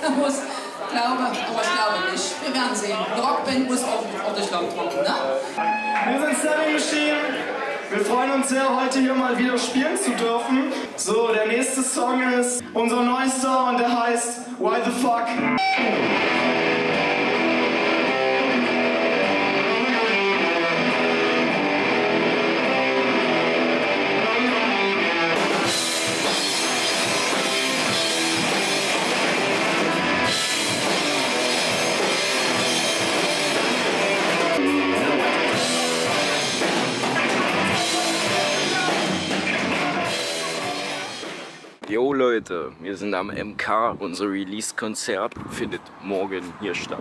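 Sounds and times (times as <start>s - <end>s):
electric guitar: 15.3s - 41.8s
drum kit: 15.6s - 42.0s.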